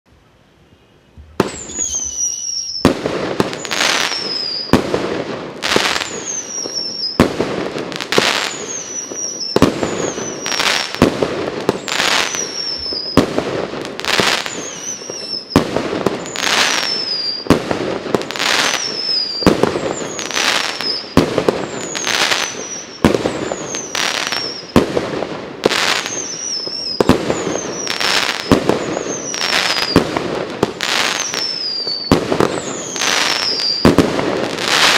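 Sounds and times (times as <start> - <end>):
firework whistle and bang: 1.1 - 4.9, 5.7 - 7.4, 8.2 - 13.4, 14.2 - 17.6, 18.3 - 24.9, 25.7 - 30.2, 30.8 - 34.9.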